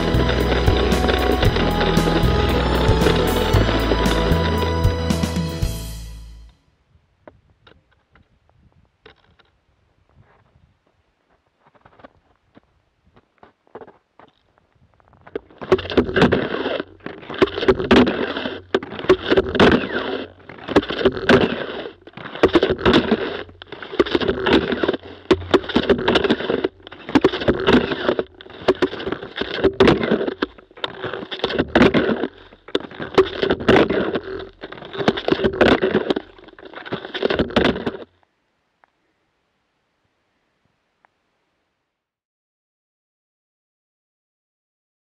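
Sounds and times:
skis swishing over crusty snow: 0.0 - 5.5, 15.2 - 38.1.

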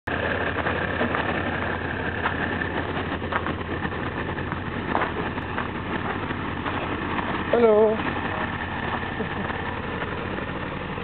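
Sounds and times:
diesel engine idling: 0.1 - 11.0.

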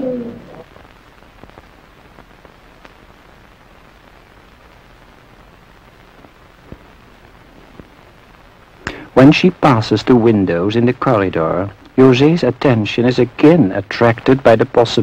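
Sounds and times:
faint film soundtrack hiss: 0.0 - 15.0
small clicks and crackles: 0.5 - 8.8.

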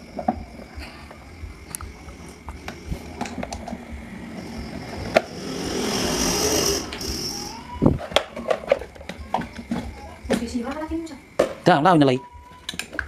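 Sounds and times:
hissing rush of noise: 0.0 - 8.0.

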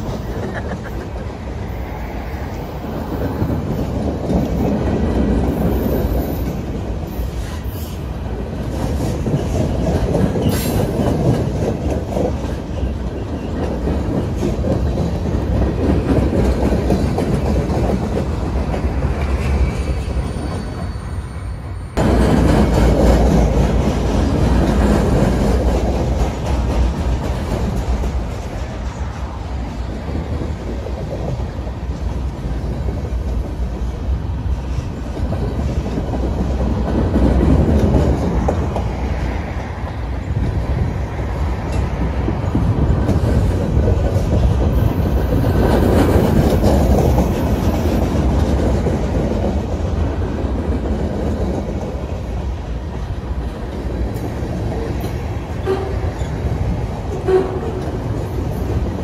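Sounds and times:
freight train wheels rumbling: 0.0 - 59.0
train wheel squeal: 5.4 - 8.2, 9.0 - 11.3, 19.2 - 22.0, 55.0 - 58.9.

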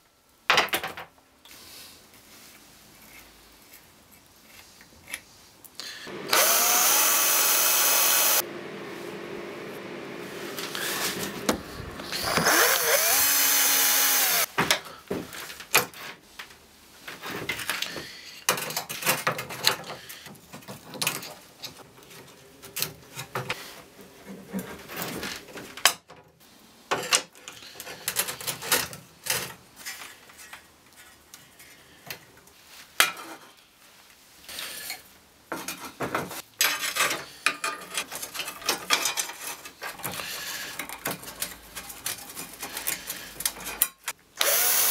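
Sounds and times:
power tool motor whining: 6.1 - 9.6, 10.5 - 14.5, 44.4 - 44.9
metal parts clicking and knocking: 36.6 - 44.2.

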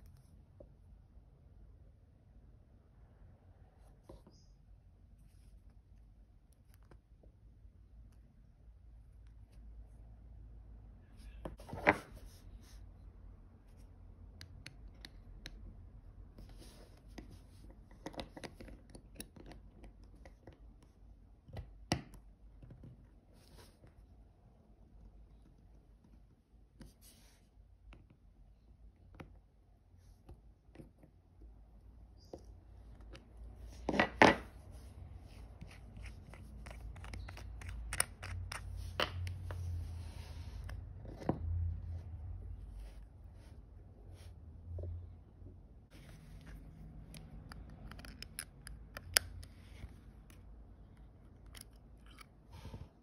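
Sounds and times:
watch caseback clicking and scraping: 35.6 - 39.9, 46.0 - 50.4, 51.1 - 52.5
metal wrench clicking on watch case: 47.8 - 49.3.

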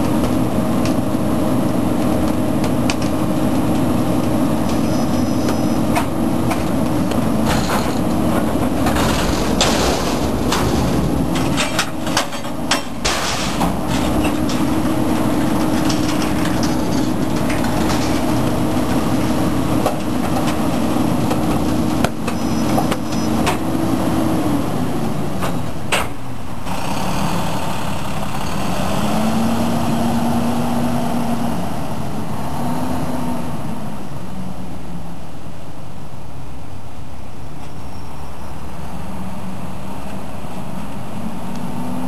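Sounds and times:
garbage truck diesel engine: 0.0 - 42.0
metal clanks and bangs: 4.6 - 23.6.

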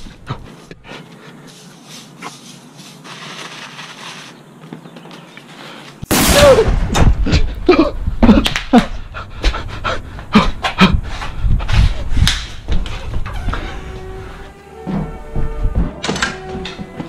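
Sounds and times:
paper crumpling: 2.8 - 4.4
loud firework bang: 6.1 - 7.2.

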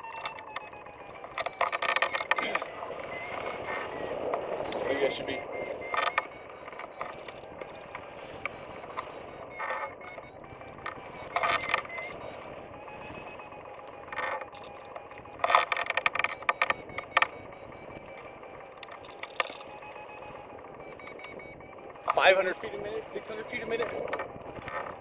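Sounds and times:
wind rush on microphone: 2.3 - 14.4, 23.3 - 25.0.

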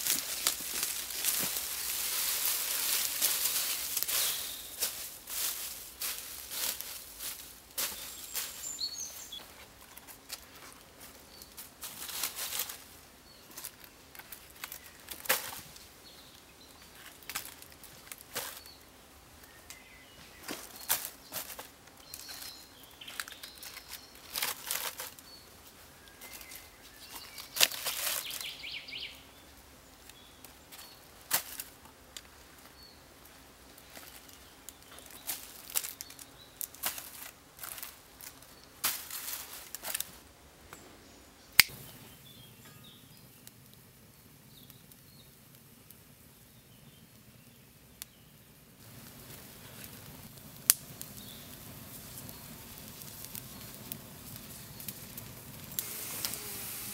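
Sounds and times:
blade scraping leaf litter: 0.0 - 12.8, 20.4 - 25.4, 26.2 - 28.8, 33.8 - 40.2, 51.2 - 56.9.

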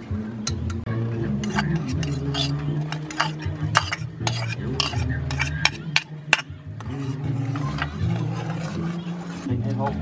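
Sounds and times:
metal ladle clinking on pot: 1.4 - 6.9.

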